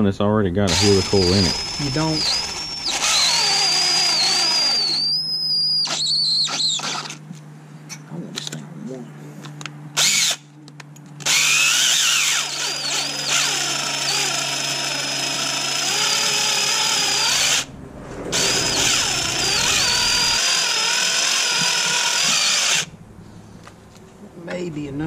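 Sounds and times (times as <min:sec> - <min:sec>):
cordless drill whining into metal: 0:00.7 - 0:07.2, 0:10.0 - 0:10.4, 0:11.2 - 0:17.7, 0:18.4 - 0:22.9.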